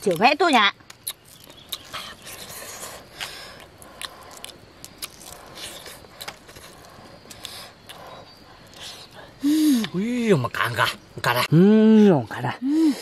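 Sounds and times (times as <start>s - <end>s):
eating eggs clicks and scrapes: 0.0s - 9.2s.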